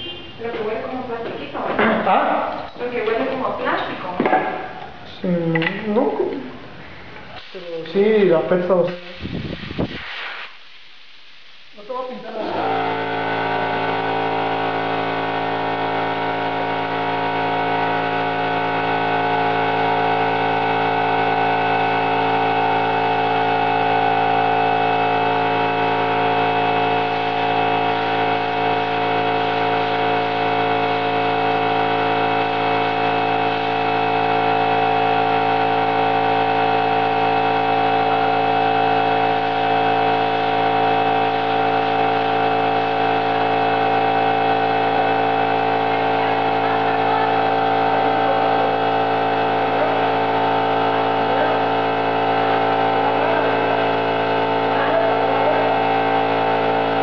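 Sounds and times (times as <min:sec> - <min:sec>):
air compressor motor humming: 0:00.0 - 0:57.0.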